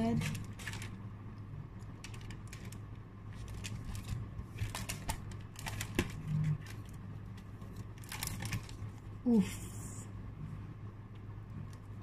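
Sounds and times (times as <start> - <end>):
steady low hum: 0.0 - 12.0
cardboard cards clicking and rustling: 2.0 - 8.8.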